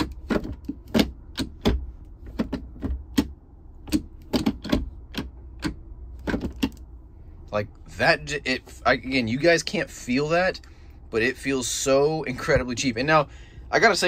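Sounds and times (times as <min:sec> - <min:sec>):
gear shift lever clicking: 0:00.0 - 0:06.9.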